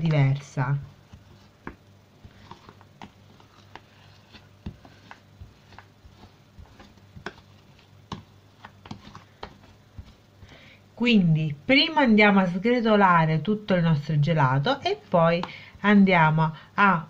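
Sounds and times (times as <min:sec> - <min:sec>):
spoon scraping in plastic tub: 0:00.9 - 0:10.2.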